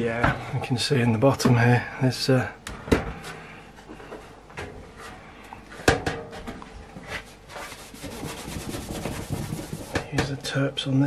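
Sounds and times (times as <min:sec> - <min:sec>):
cloth rubbing sheet metal: 0:07.0 - 0:10.1.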